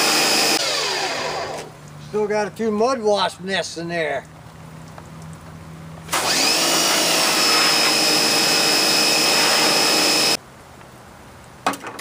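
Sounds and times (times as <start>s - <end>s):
pressure washer motor whining: 0.0s - 1.8s, 6.1s - 10.4s.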